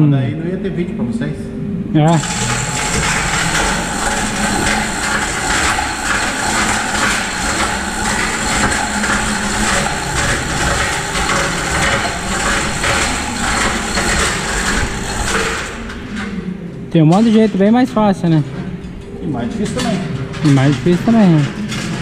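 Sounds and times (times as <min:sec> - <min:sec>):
chain rattling through hoist: 0:02.2 - 0:16.0.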